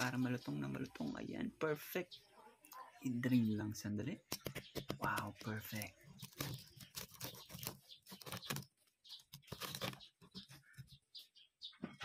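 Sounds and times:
knife crunching crispy pork skin: 4.3s - 10.1s.

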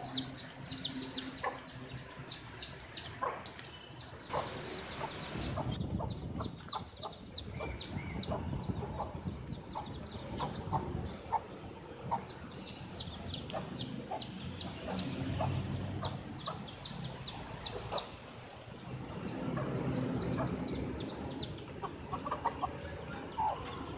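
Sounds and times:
chicks peeping: 0.3s - 18.2s, 19.1s - 23.9s
hen clucking: 4.3s - 18.1s, 19.5s - 23.9s.

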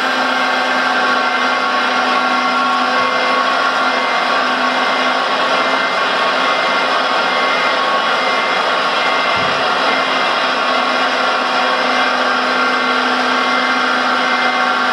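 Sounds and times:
hydraulic pump whining: 0.0s - 14.9s.

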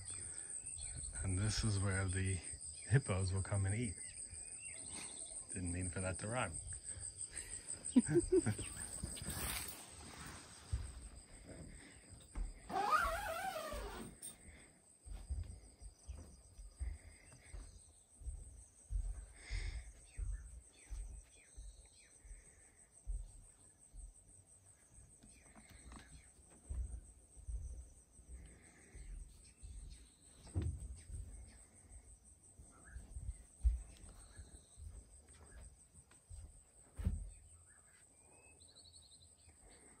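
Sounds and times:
high insect trill: 0.0s - 40.0s
footsteps on wooden floor: 10.3s - 12.7s, 15.1s - 21.9s, 23.1s - 24.2s, 32.9s - 37.5s.

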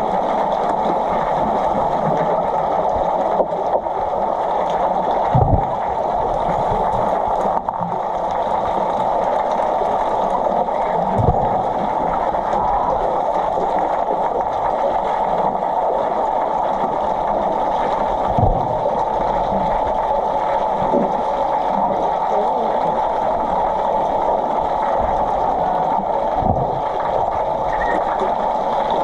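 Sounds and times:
muffled underwater pool noise: 0.0s - 29.0s
low thuds: 5.3s - 5.8s.

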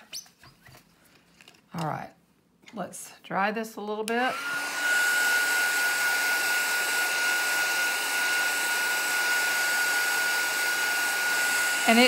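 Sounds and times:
heat tool blowing hot air: 4.2s - 12.0s.

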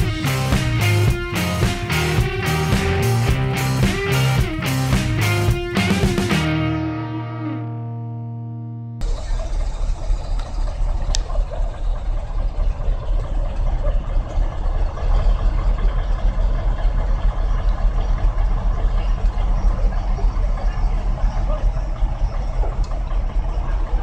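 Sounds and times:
diesel engine rumbling: 0.0s - 24.0s.

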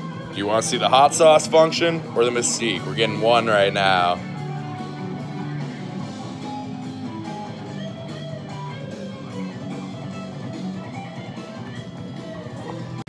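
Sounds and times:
background guitar music: 0.0s - 13.0s.

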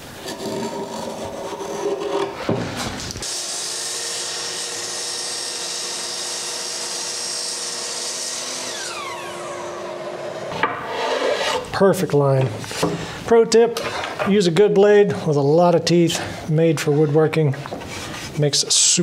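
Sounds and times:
saw motor winding down: 3.2s - 10.5s
miter saw cutting wood: 3.2s - 11.7s.

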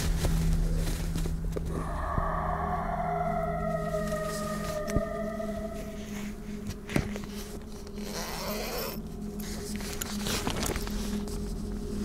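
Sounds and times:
tent zipper being pulled: 7.9s - 11.0s.

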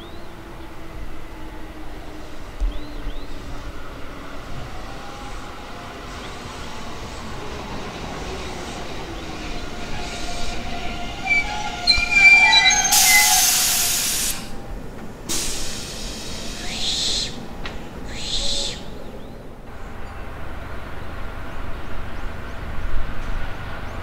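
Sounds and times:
electric train running: 6.0s - 14.7s
train wheels and brakes squealing: 8.4s - 14.6s
compressed air hiss: 12.9s - 14.5s, 15.3s - 17.3s.

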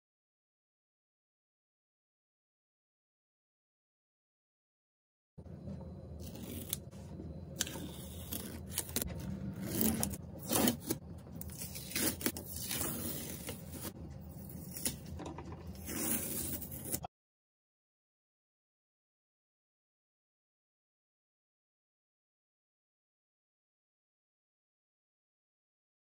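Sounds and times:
masking tape peeling and tearing: 7.6s - 15.1s, 15.8s - 17.0s.

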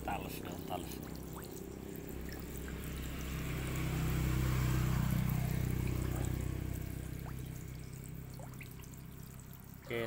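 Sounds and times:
low motor hum: 0.0s - 10.0s
running water hiss: 0.1s - 10.0s.

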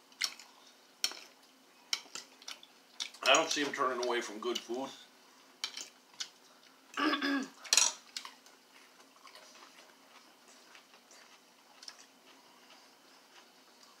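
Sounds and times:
cutlery clinking against a bowl: 5.6s - 6.3s, 7.6s - 8.3s.

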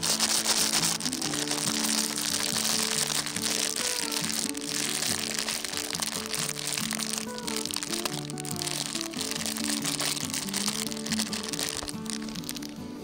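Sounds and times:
background music of held notes: 0.0s - 13.0s
food simmering in a pot: 1.1s - 10.3s.

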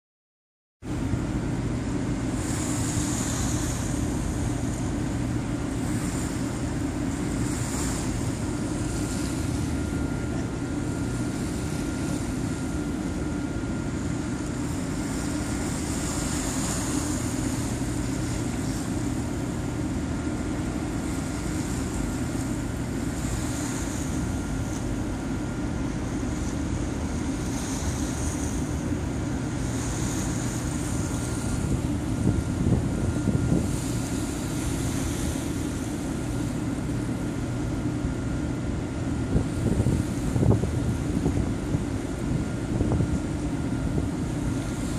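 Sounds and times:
faint steady whine: 0.9s - 44.9s
water wash: 0.9s - 44.9s
wind on microphone: 29.7s - 35.5s, 38.8s - 44.9s.

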